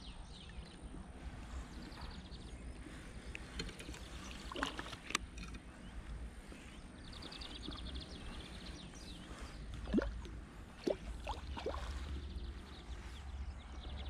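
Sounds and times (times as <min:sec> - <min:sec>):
wind rumble on microphone: 0:00.0 - 0:14.0
fish splashing at water surface: 0:09.8 - 0:12.2.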